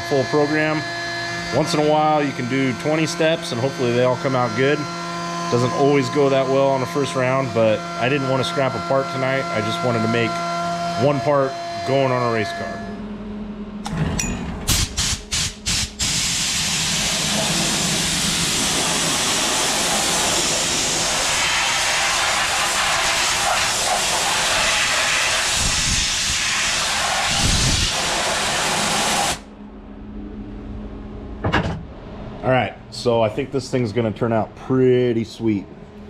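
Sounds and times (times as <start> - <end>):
air hissing: 14.7 - 29.4
compressed air blasts: 14.7 - 29.4.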